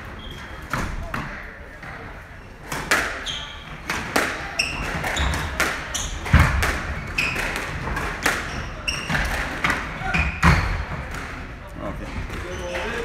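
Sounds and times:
squash ball hitting rackets and walls: 0:00.0 - 0:11.5
shoes squeaking on wooden floor: 0:04.6 - 0:07.8, 0:08.4 - 0:09.4.

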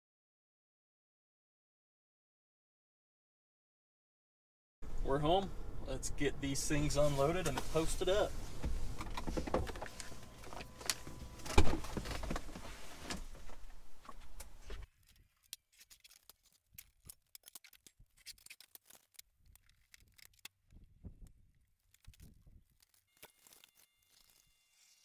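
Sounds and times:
rustling and clatter in car cab: 0:07.3 - 0:14.9.

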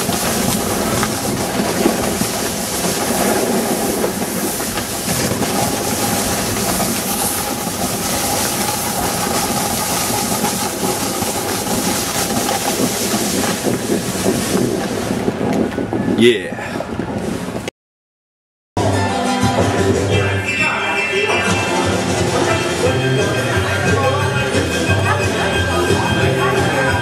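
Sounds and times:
skis sliding over snow: 0:00.0 - 0:15.9
wind rushing over microphone: 0:00.0 - 0:17.7.

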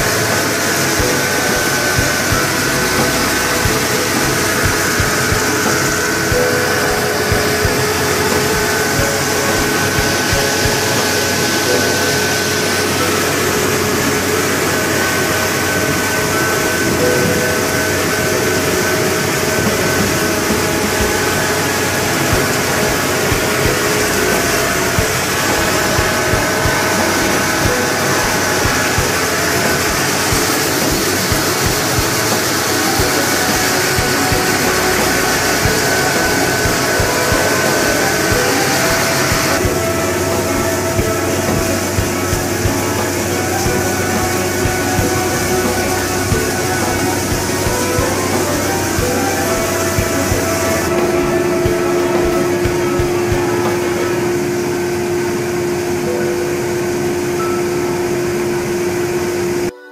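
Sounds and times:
rice mill machinery din: 0:00.0 - 0:59.9
thin high whine: 0:00.0 - 0:59.9.

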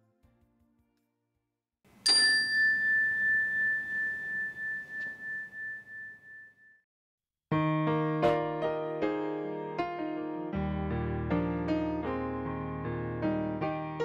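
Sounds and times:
chime ringing: 0:02.0 - 0:06.8.

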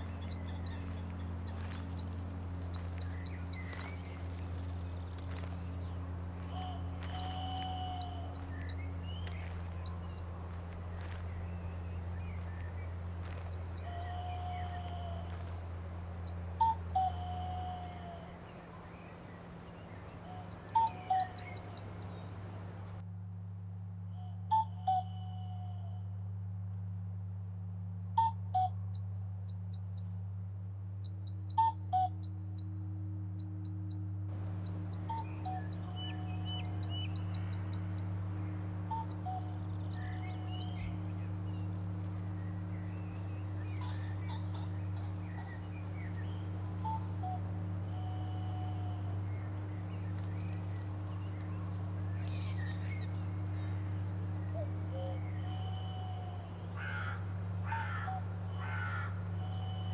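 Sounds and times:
steady low drone: 0:00.0 - 0:59.9
steady low hum: 0:00.0 - 0:59.9
low whistle: 0:16.6 - 0:18.3, 0:28.2 - 0:29.2, 0:46.0 - 0:49.7.

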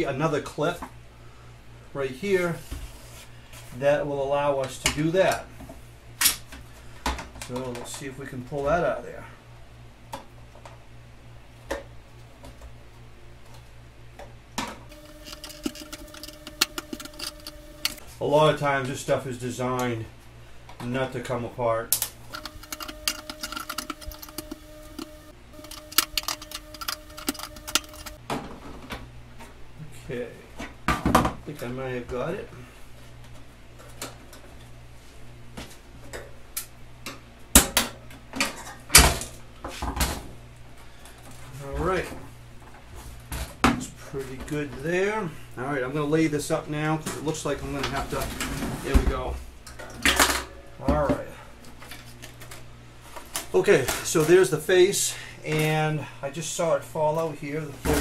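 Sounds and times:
screwdriver prying plastic clips: 0:22.4 - 0:28.2.

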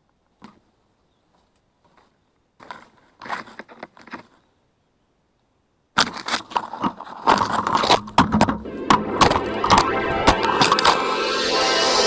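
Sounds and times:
twigs and leaves crackling: 0:00.4 - 0:04.5.

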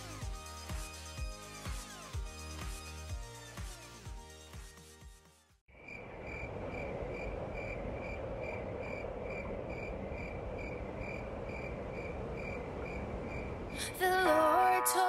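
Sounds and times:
crickets chirping: 0:05.7 - 0:13.9.

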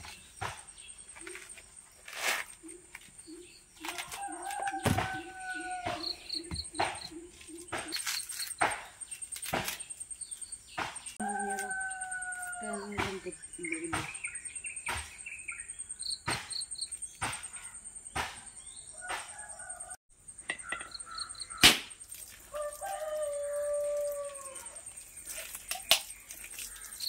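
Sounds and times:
birds chirping: 0:00.0 - 0:27.0
coconut husk cracking and tearing: 0:03.8 - 0:04.8, 0:25.2 - 0:27.0
machete striking coconut: 0:07.7 - 0:09.9, 0:18.2 - 0:18.5, 0:21.6 - 0:22.0
dog howling: 0:22.8 - 0:24.8.

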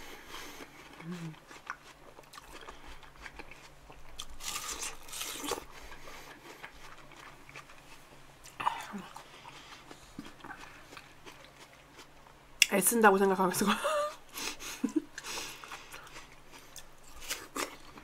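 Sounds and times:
watermelon crunching bites: 0:00.8 - 0:07.9, 0:16.0 - 0:18.0.

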